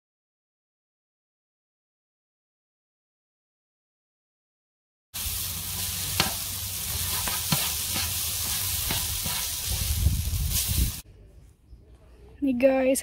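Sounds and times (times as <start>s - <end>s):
noodles sizzling on griddle: 5.2s - 11.0s
spatula scraping and knocking: 6.2s - 9.8s.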